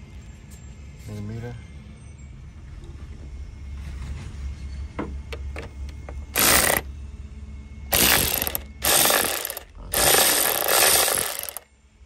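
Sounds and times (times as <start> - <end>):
ratchet wrench clicking: 6.4 - 6.8, 7.9 - 11.6.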